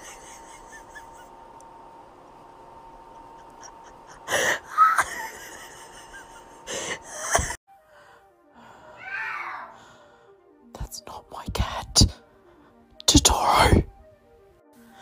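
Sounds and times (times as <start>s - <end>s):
breathy gasp-like wheezes: 6.6s - 10.6s.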